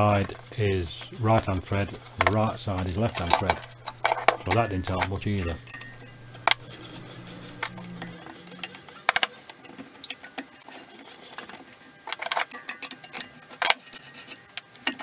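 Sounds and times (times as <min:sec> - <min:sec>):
spanners clinking on metal: 0:01.0 - 0:09.3, 0:12.1 - 0:15.0.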